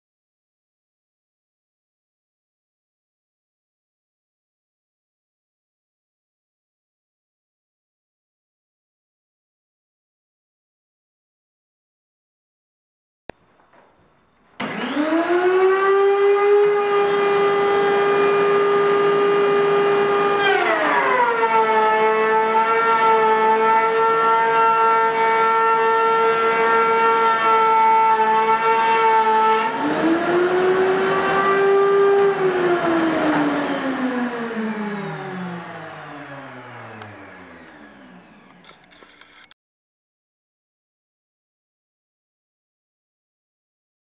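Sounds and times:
router table machine whining: 0:14.6 - 0:39.6.

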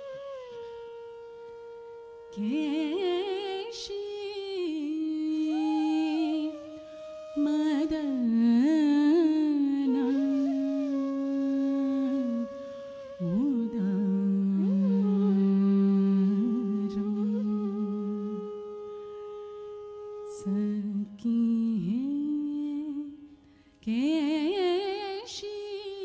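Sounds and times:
person singing ornamented notes: 0:02.4 - 0:06.7, 0:13.2 - 0:18.5.

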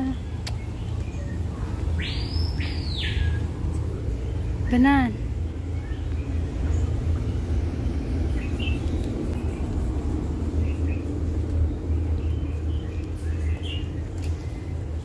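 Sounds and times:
low background rumble: 0:00.0 - 0:15.0
bird chirps: 0:00.1 - 0:03.5.

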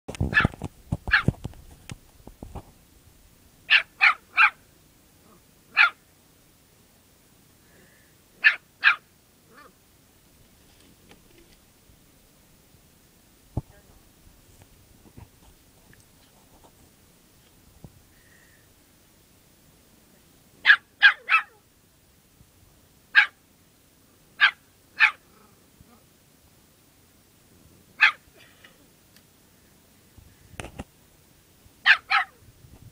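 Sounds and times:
small dog yapping: 0:00.3 - 0:01.3, 0:03.7 - 0:04.6, 0:05.7 - 0:06.0, 0:08.4 - 0:09.8, 0:20.6 - 0:21.6, 0:23.2 - 0:23.4, 0:24.4 - 0:25.2, 0:28.0 - 0:28.3, 0:31.8 - 0:32.4.

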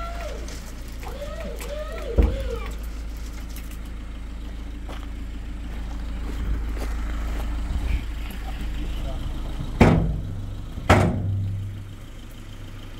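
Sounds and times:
footsteps on gravel: 0:00.0 - 0:09.8
truck engine idling: 0:00.0 - 0:12.9.

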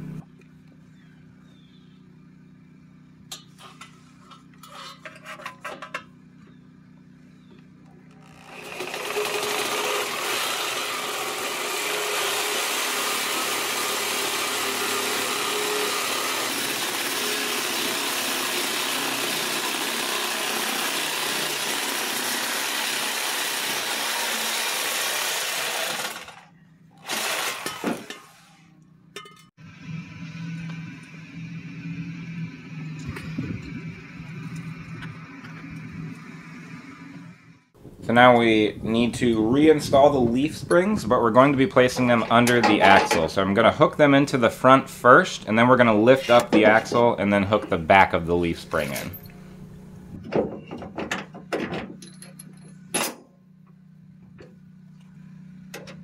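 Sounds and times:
reciprocating saw cutting steel pipe: 0:08.2 - 0:28.7.

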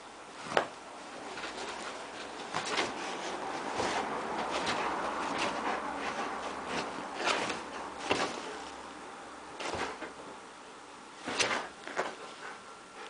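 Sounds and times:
fabric rustling: 0:00.4 - 0:08.8
dog scratching at quilt: 0:01.2 - 0:08.7, 0:09.6 - 0:10.1, 0:11.2 - 0:12.3.

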